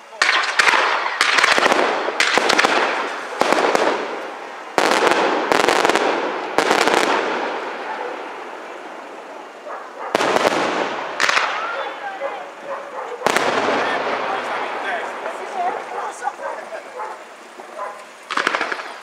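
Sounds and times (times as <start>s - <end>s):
fireworks shells bursting: 0.0s - 9.5s, 10.1s - 12.0s, 13.2s - 15.9s, 18.1s - 19.0s.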